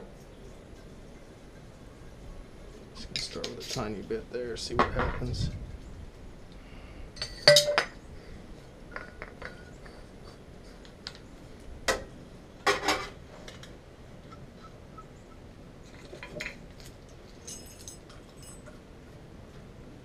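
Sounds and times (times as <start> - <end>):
metal fittings and tools clinking: 7.2 - 7.9, 15.9 - 18.8.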